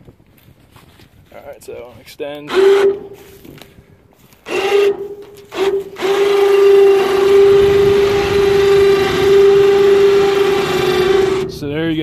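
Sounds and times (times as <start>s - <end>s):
electric winch motor whining: 4.5s - 11.6s.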